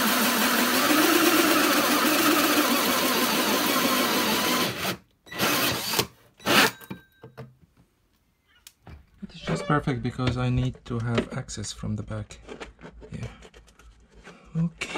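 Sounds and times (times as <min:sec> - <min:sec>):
drill hole saw cutting panel: 0:00.0 - 0:06.8.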